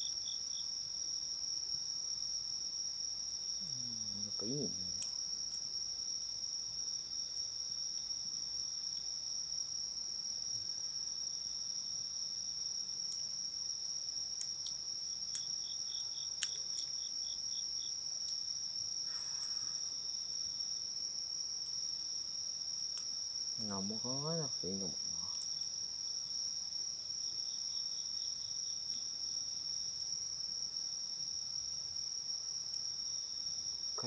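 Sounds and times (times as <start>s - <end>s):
insect rapid chirps: 0.0s - 34.0s
insects trilling: 0.0s - 34.0s
campfire crackling pops: 3.7s - 6.4s, 13.0s - 13.4s, 14.3s - 17.0s, 18.2s - 20.7s, 22.8s - 25.8s.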